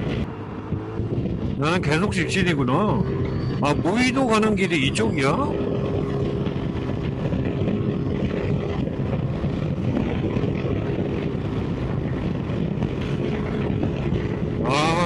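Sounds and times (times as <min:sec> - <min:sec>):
scooter engine running: 0:00.0 - 0:15.0
wind noise on microphone: 0:00.0 - 0:15.0.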